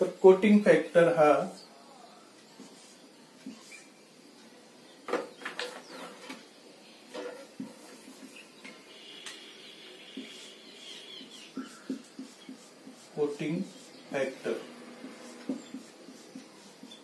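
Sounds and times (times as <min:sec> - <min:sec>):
marker scratching on whiteboard: 0:02.6 - 0:03.9, 0:07.2 - 0:17.0
marker squeaking on whiteboard: 0:02.6 - 0:04.0, 0:07.2 - 0:17.0.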